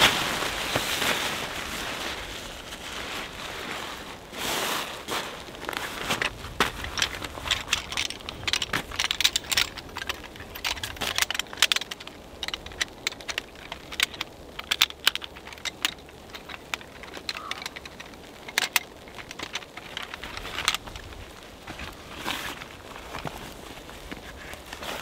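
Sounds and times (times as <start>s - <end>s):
metal chair poles clicking: 6.1s - 21.1s.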